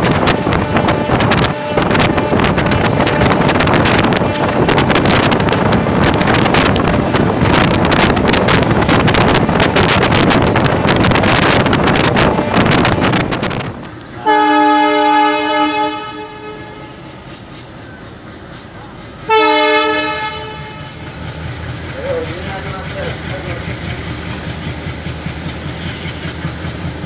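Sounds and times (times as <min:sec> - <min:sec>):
diesel locomotive horn blast: 0:00.0 - 0:07.3, 0:11.9 - 0:13.3, 0:14.1 - 0:17.1, 0:19.3 - 0:21.1
wind buffeting microphone: 0:00.0 - 0:13.9
moving train rushing: 0:00.0 - 0:27.0.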